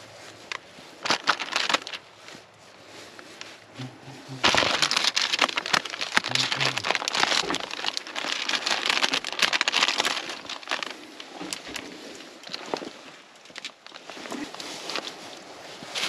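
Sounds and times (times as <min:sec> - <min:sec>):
plastic packaging crinkling: 0:00.5 - 0:02.3, 0:04.3 - 0:15.2.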